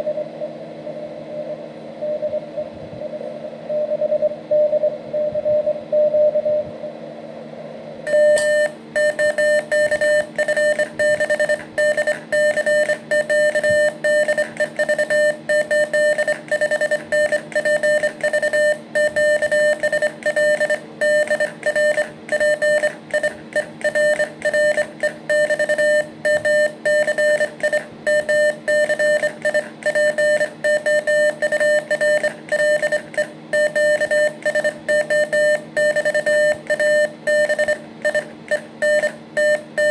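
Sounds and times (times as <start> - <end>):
morse code tone: 8.1 - 39.9.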